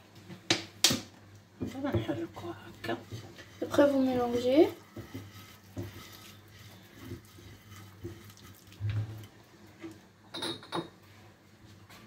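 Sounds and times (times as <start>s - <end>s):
fingers squishing wet marinade: 3.7s - 8.8s.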